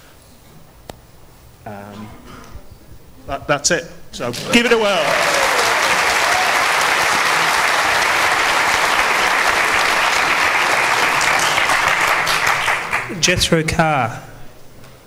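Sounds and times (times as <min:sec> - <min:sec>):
audience applauding: 0:04.2 - 0:13.4.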